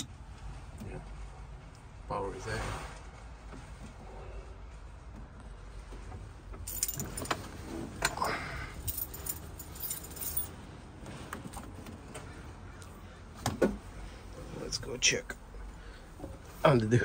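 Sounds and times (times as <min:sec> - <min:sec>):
metallic jangling and clicking: 0:06.6 - 0:07.4, 0:08.7 - 0:10.5.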